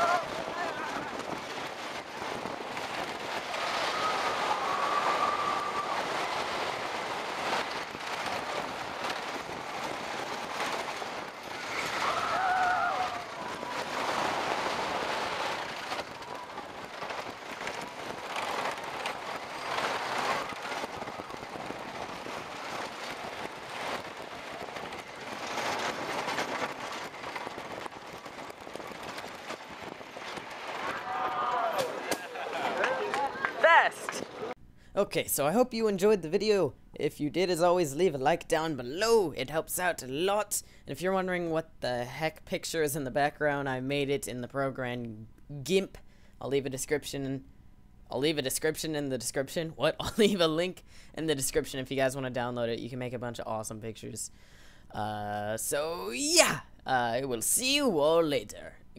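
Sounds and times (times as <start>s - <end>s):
wind on microphone: 0.0s - 31.7s
roller coaster clattering on track: 0.0s - 34.5s.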